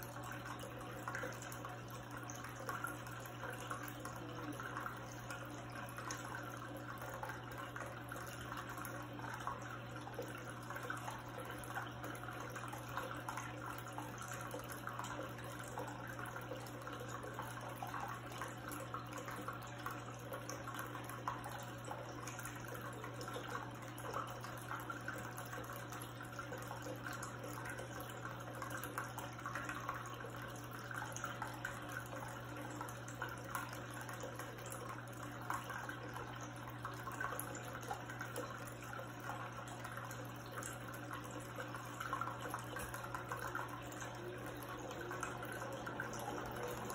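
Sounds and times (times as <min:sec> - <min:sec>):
electric pump hum: 0:00.0 - 0:46.9
water trickling and splashing: 0:00.0 - 0:46.9.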